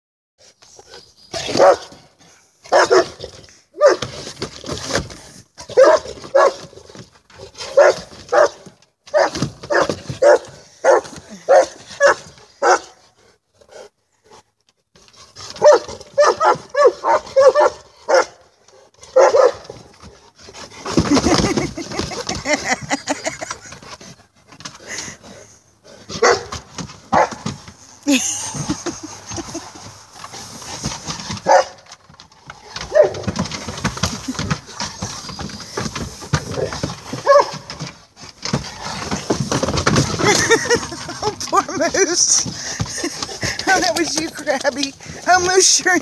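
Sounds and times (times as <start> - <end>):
dog barking: 1.5 - 1.9, 2.7 - 3.2, 3.8 - 4.0, 5.7 - 6.6, 7.7 - 13.0, 15.6 - 18.4, 19.1 - 19.7, 26.1 - 27.4, 31.4 - 31.8, 32.9 - 33.2, 37.2 - 37.6.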